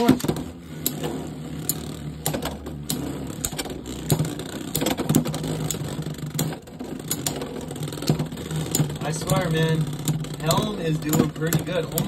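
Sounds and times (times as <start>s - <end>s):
sharp plastic clacks: 0.0s - 12.0s
spinning tops whirring: 0.0s - 12.0s.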